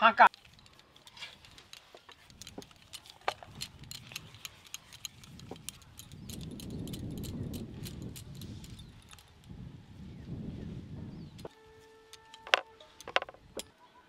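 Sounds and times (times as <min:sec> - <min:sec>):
bangles tapping together: 0:00.3 - 0:09.5, 0:12.2 - 0:13.7.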